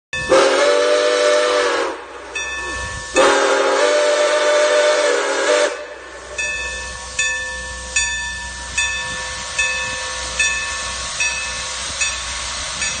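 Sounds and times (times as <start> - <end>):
locomotive bell ringing: 0.1 - 0.7, 2.3 - 3.6, 5.6 - 13.0
steam whistle blasts: 0.2 - 6.4.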